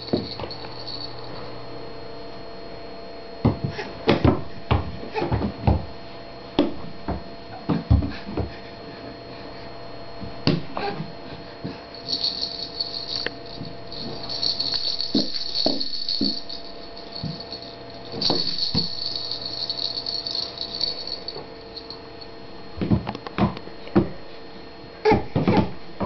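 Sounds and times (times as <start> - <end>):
plastic toy rattle shaken: 13.9 - 21.3.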